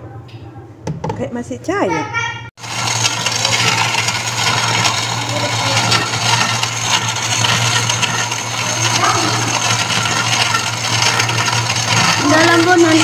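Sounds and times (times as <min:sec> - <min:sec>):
blender motor humming: 0:02.6 - 0:13.0.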